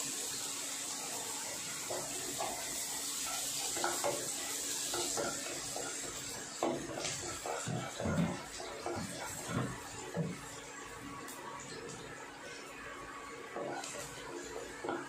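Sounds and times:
garlic sizzling in oil: 0.0s - 15.0s.

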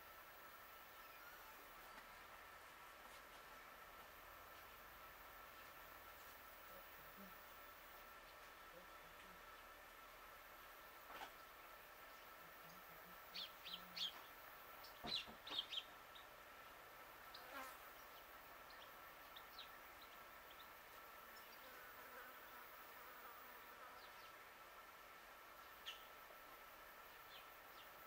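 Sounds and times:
insect-like hum: 0.0s - 28.0s
small birds chirping: 11.2s - 16.4s, 17.2s - 21.8s, 23.9s - 24.5s, 25.5s - 26.2s, 27.0s - 28.0s.

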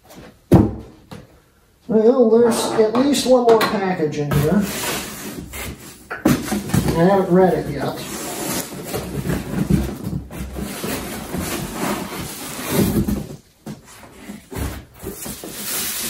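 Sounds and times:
cardboard rubbing and scraping: 4.3s - 16.0s.

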